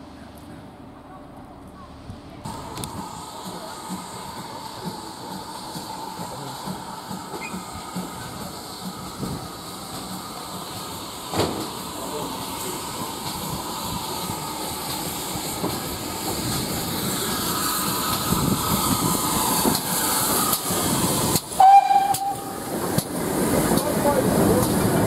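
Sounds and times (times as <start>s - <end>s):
steam locomotive hissing: 2.4s - 25.0s
steam whistle blast: 21.6s - 22.6s.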